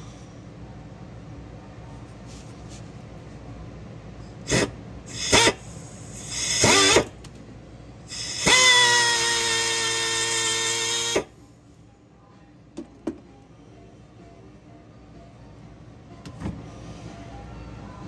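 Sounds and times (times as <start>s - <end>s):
power drill motor: 4.5s - 5.6s, 6.2s - 7.1s, 8.1s - 11.3s.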